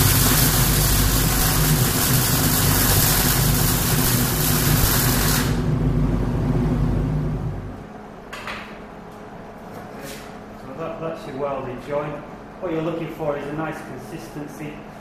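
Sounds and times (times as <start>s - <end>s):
welding arc hissing: 0.0s - 5.7s
low machine hum: 0.0s - 15.0s.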